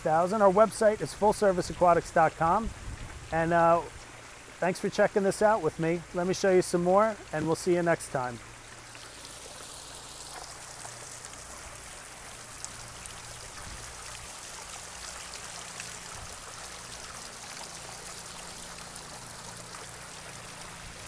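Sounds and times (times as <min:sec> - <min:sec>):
fountain water splashing: 0:00.0 - 0:21.0.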